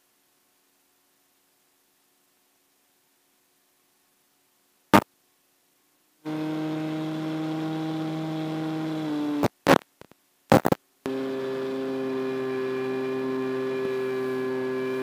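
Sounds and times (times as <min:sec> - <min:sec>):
electric motor propeller whine: 0:06.2 - 0:09.4, 0:11.1 - 0:15.0
loud crackling pops: 0:09.4 - 0:10.8.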